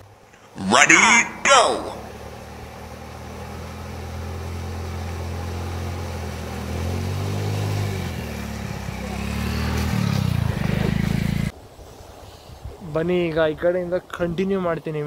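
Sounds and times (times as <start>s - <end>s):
vehicle engine running: 0.0s - 11.5s
vehicle driving through water: 1.4s - 11.6s.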